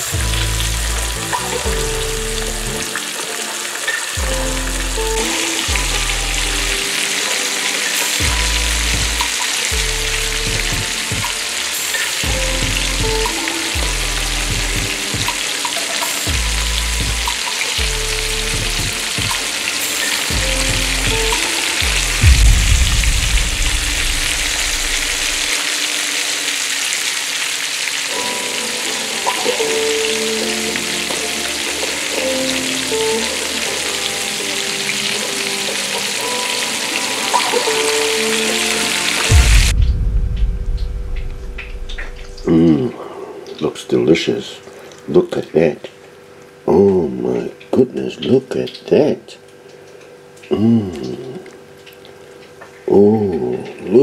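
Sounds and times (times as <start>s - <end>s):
background music with bass line: 0.0s - 3.1s, 4.1s - 7.0s, 8.0s - 15.5s, 16.1s - 25.6s, 38.0s - 42.8s
fish sizzling in a pan: 0.0s - 22.3s, 23.9s - 39.7s
loud low rumble: 21.8s - 25.5s, 39.3s - 42.5s.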